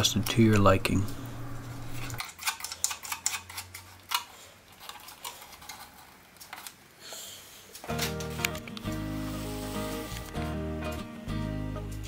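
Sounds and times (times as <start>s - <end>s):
small parts clicking and tapping: 2.2s - 6.8s.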